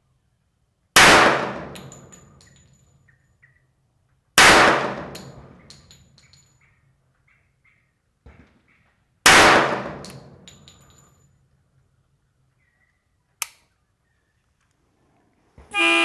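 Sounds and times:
pistol shot with echo: 1.0s - 2.1s, 4.4s - 5.6s, 9.2s - 10.4s.

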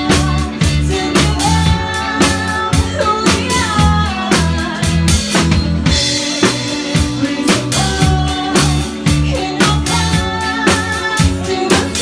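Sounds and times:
drum kit beat: 0.0s - 12.0s
live pop-rock band: 0.0s - 12.0s
woman singing: 0.0s - 12.0s.

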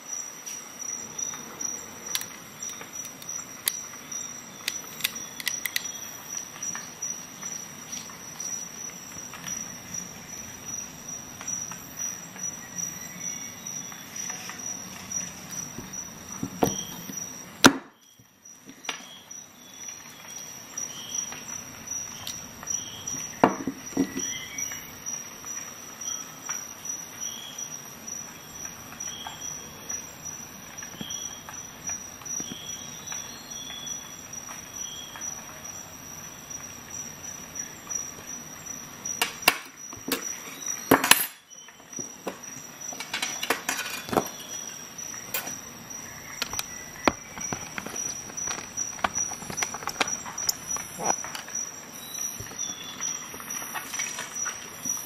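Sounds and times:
small metal clicks and knocks: 42.2s - 44.5s, 46.4s - 51.6s.

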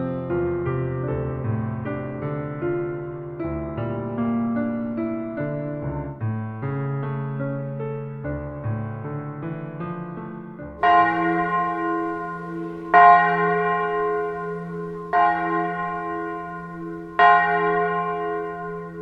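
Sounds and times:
bell tolling: 10.8s - 19.0s.

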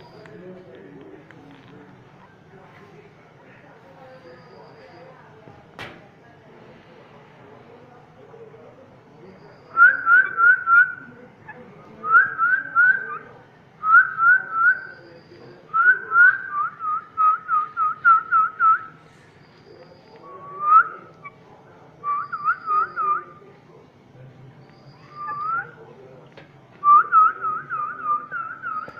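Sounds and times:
parakeet whistling: 22.0s - 23.4s, 24.7s - 25.8s, 26.9s - 28.9s.

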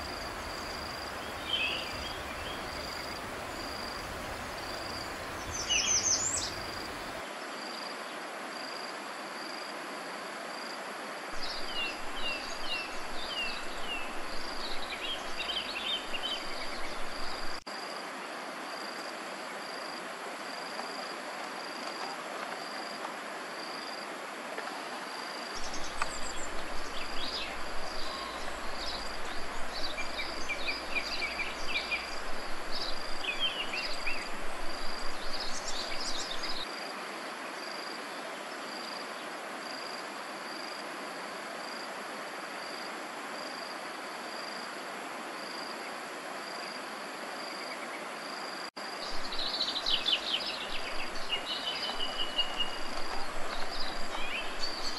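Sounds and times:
steady hiss: 0.0s - 7.9s.

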